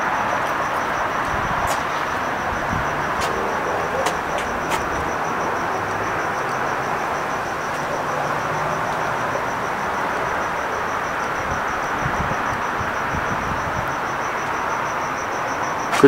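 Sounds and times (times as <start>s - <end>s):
cricket chirping: 0.0s - 16.0s
rushing background noise: 0.0s - 16.0s.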